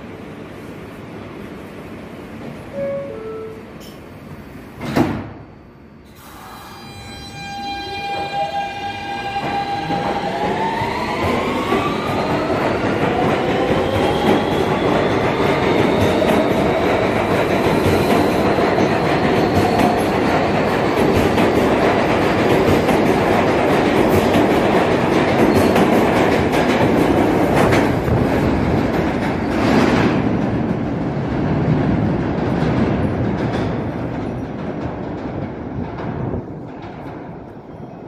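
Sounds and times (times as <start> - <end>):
subway traction motor whine: 5.7 - 20.9
train cars rumbling: 7.6 - 38.0.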